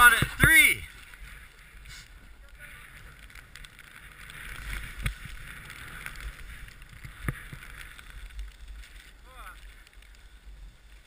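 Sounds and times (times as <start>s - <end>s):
wind rumble on microphone: 0.0s - 11.0s
snowboard swishing through powder: 1.0s - 3.2s.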